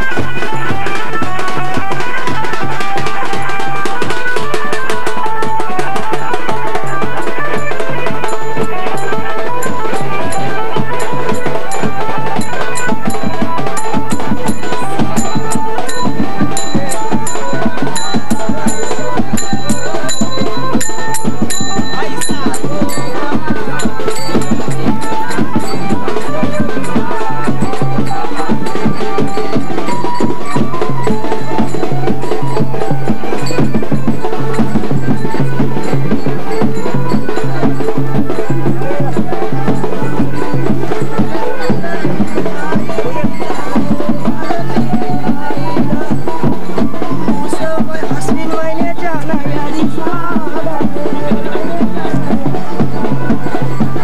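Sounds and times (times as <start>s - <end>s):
traditional music with drums: 0.0s - 54.0s
high metallic strikes: 6.2s - 45.0s.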